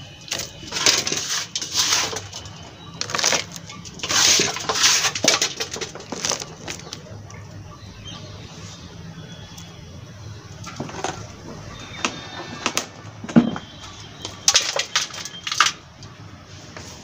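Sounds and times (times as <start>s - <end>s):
soil scraping and rustling: 0.0s - 7.1s, 10.6s - 15.8s.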